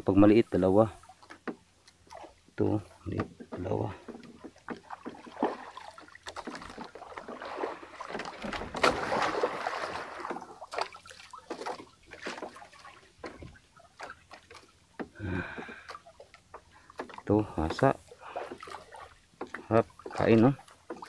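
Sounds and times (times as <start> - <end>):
water sloshing around boat: 0.0 - 21.0
small clicks and knocks: 1.2 - 2.1.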